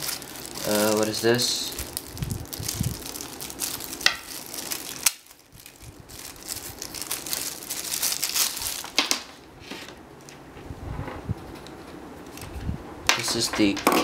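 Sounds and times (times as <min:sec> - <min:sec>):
plastic bag crinkling: 0:00.0 - 0:09.4.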